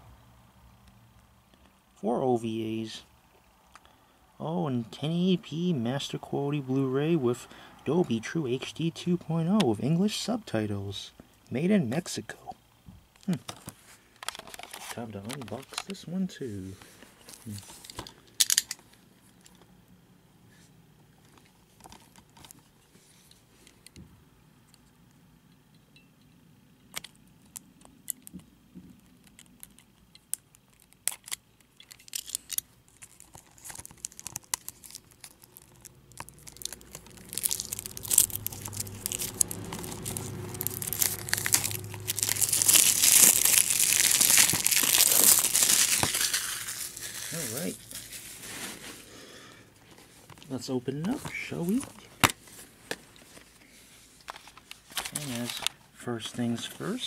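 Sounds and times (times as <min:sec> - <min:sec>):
plastic shrink wrap crinkling and tearing: 0:13.2 - 0:16.0, 0:29.0 - 0:49.2, 0:54.2 - 0:55.8
small clicks and scratches: 0:26.9 - 0:43.5.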